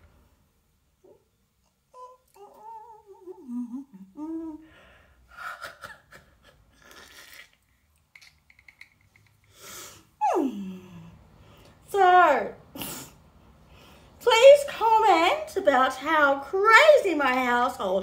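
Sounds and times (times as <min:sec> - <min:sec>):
woman humming: 0:01.9 - 0:04.8, 0:10.2 - 0:11.2.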